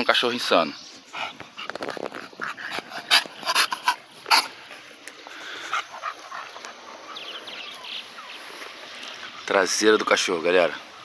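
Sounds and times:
dogs barking: 1.2s - 4.6s, 5.6s - 8.2s.

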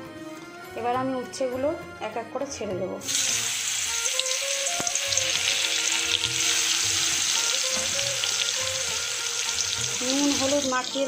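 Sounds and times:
vegetables sizzling in hot oil: 3.0s - 11.0s.

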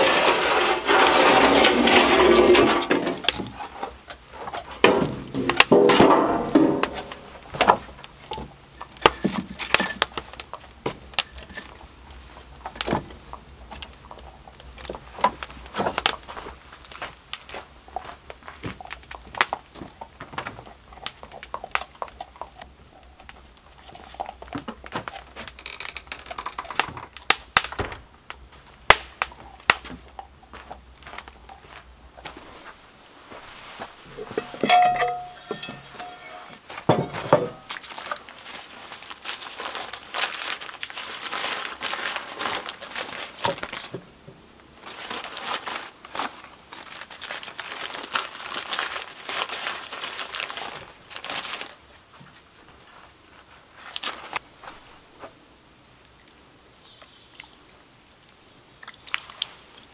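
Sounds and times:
metal oven door scraping: 0.0s - 2.9s
wood fire crackling: 0.0s - 59.9s.

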